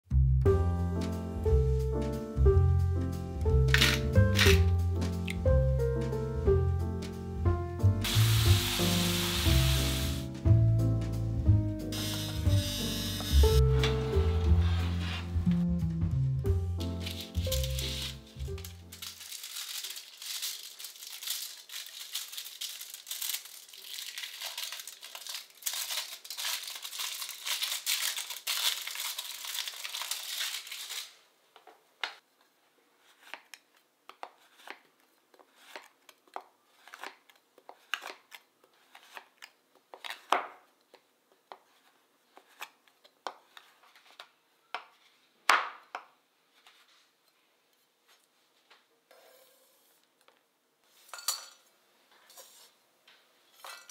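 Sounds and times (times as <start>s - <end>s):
wrapper crinkling: 3.7s - 4.6s, 16.9s - 31.2s.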